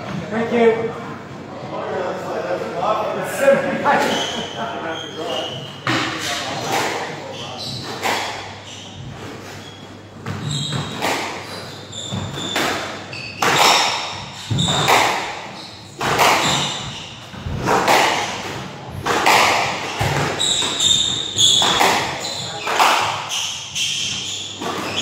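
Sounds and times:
shoes squeaking on wooden floor: 0:04.0 - 0:25.0
squash ball hitting racquets and walls: 0:05.8 - 0:25.0.

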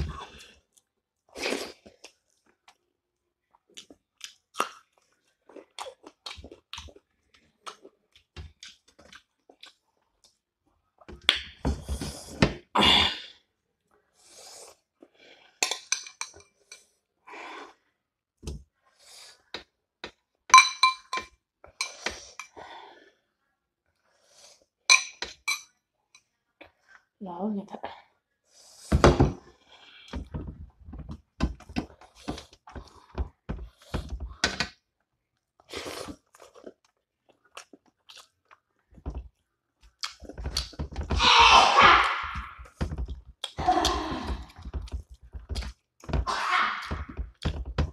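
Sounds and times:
wet chewing: 0:03.6 - 0:10.4, 0:35.6 - 0:41.0
metal spoon clinking glass bowl: 0:20.6 - 0:21.3.

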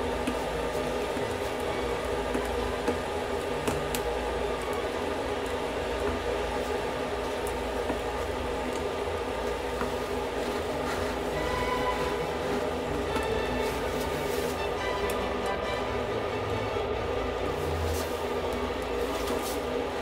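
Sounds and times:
hot metal searing eggs sizzling: 0:00.0 - 0:15.9.

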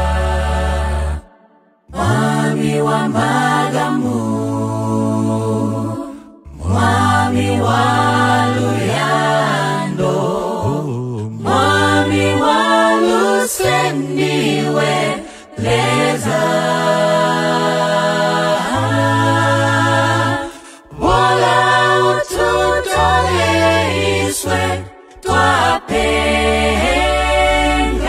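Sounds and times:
a cappella group singing: 0:00.0 - 0:28.0
low bass voice holding notes: 0:06.5 - 0:07.6, 0:10.6 - 0:11.5.

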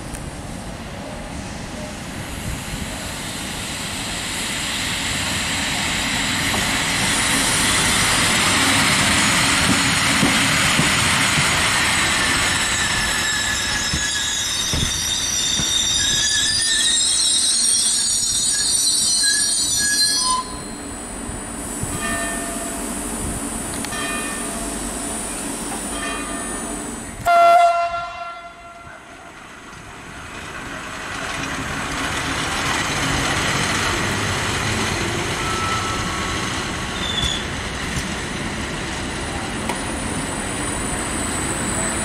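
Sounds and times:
train wheels rumbling on track: 0:00.0 - 0:42.0
train wheels squealing: 0:11.6 - 0:20.9, 0:21.9 - 0:23.0, 0:34.8 - 0:37.6.

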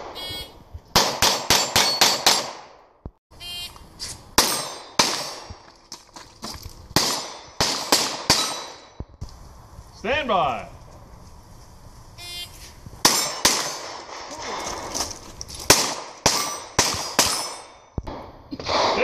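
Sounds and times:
shot timer beep: 0:00.0 - 0:00.6, 0:12.2 - 0:12.6
pistol shots: 0:01.0 - 0:02.8, 0:04.4 - 0:05.6, 0:07.0 - 0:09.0, 0:13.0 - 0:14.8, 0:15.7 - 0:19.0
steel targets ringing: 0:04.4 - 0:05.4, 0:08.3 - 0:09.0, 0:13.0 - 0:13.9, 0:16.3 - 0:18.0.

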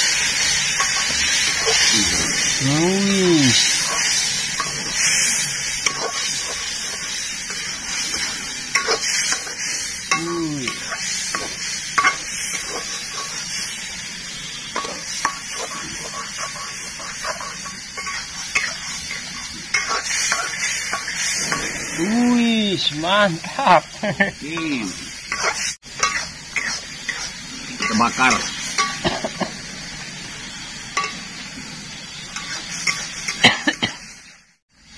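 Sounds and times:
food sizzling in a pan: 0:00.0 - 0:34.9
spatula scraping and tapping pan: 0:08.7 - 0:09.6, 0:10.7 - 0:13.4, 0:14.7 - 0:21.7, 0:25.3 - 0:29.0.

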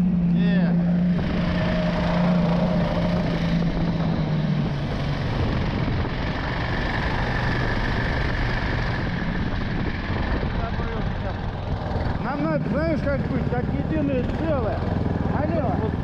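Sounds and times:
wind noise on microphone: 0:00.0 - 0:12.3
snowmobile engine running: 0:00.0 - 0:16.0.

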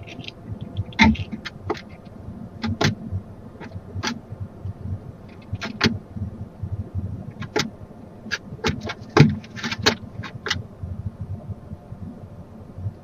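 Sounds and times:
low rumble: 0:00.0 - 0:08.6, 0:10.0 - 0:13.0
scrapes and knocks in nest box: 0:05.3 - 0:06.0, 0:08.3 - 0:10.6.

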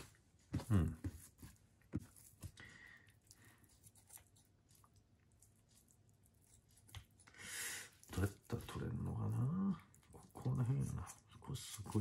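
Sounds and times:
knife scraping raw meat: 0:03.7 - 0:04.8.

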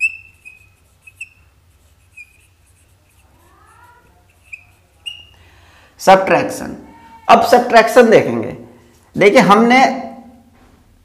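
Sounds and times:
marker squeaking on whiteboard: 0:00.0 - 0:05.4.

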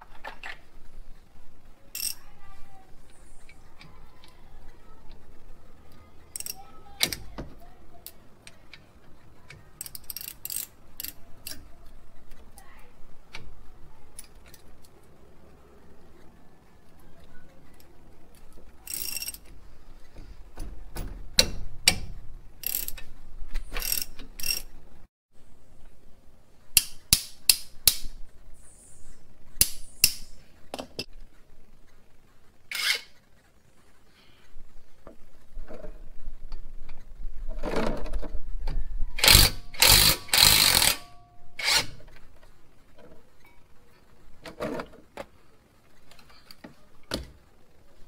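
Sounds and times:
metal tools clicking and clinking: 0:02.0 - 0:02.3, 0:06.3 - 0:07.2, 0:18.8 - 0:19.6.

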